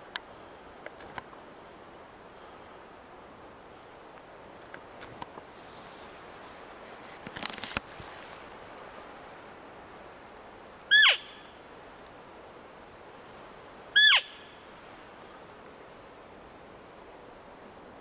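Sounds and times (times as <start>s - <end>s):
handling rustle: 4.6s - 10.1s
elk call mews: 10.9s - 11.4s, 13.9s - 14.5s.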